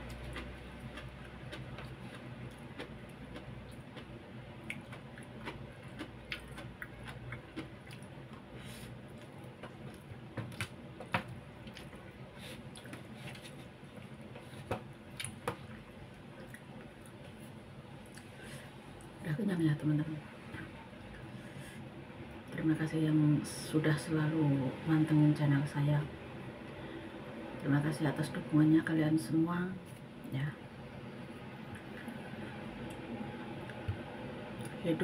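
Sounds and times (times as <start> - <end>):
soft chewing: 0.0 - 19.2, 31.4 - 34.8.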